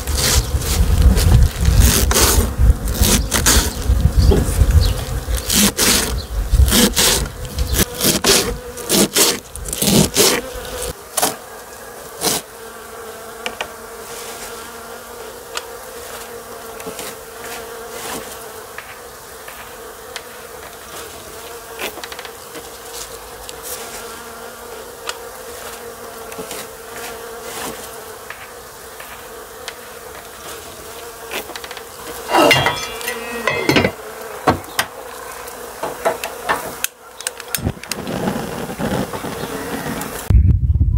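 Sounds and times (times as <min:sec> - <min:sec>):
bees buzzing: 0:00.0 - 0:40.3
cookware clattering: 0:32.3 - 0:34.0.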